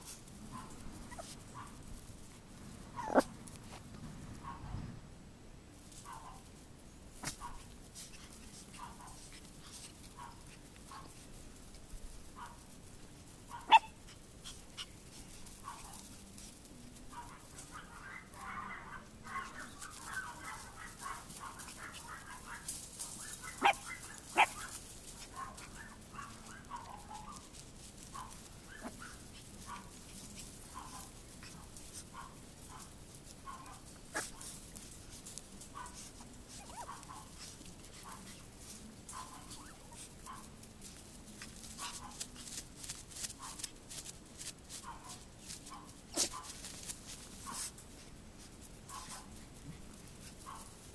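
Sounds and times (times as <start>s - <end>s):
puppies yipping: 0.0s - 1.9s, 3.0s - 3.3s, 13.5s - 16.5s, 17.1s - 41.0s, 48.8s - 50.8s.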